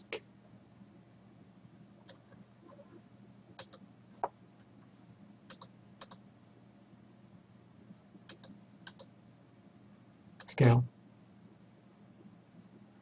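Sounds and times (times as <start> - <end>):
faint low hum: 0.0 - 13.0
computer keyboard key clicks: 3.6 - 3.8, 5.5 - 6.2, 8.3 - 9.1.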